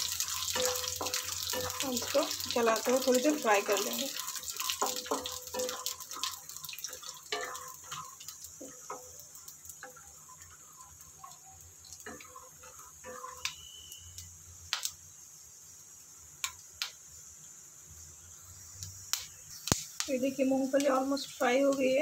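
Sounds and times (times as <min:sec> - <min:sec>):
oil popping: 0:00.0 - 0:14.9
peanuts sizzling in oil: 0:00.0 - 0:22.0
spatula scraping a pan: 0:00.1 - 0:09.1, 0:12.0 - 0:13.9.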